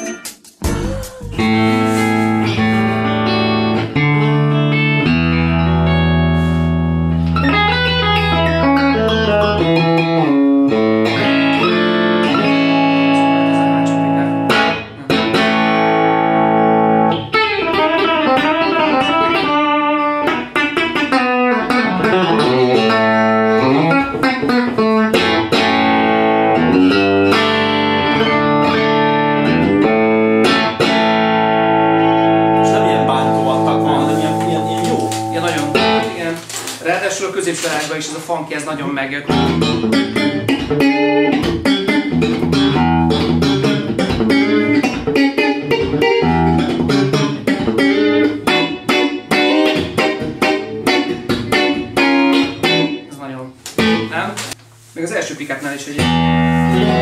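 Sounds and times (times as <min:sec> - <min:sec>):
electric guitar playing: 0:00.0 - 0:36.8, 0:39.3 - 0:54.6, 0:56.0 - 0:57.0.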